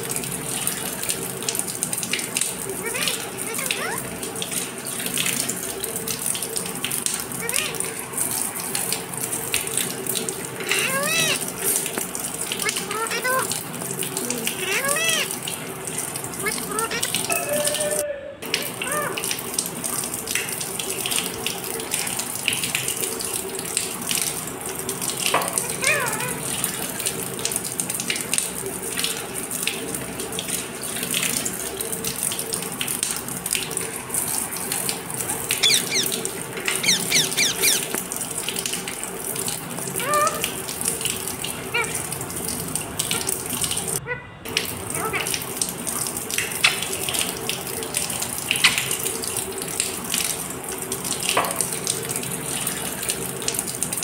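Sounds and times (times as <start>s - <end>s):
water splashing on cage: 0.0s - 54.0s
parakeet squeaks: 2.8s - 4.0s, 7.4s - 7.9s, 10.6s - 11.8s, 12.6s - 13.5s, 14.3s - 15.3s, 16.4s - 17.2s, 25.6s - 26.4s, 35.2s - 38.0s, 40.0s - 40.4s.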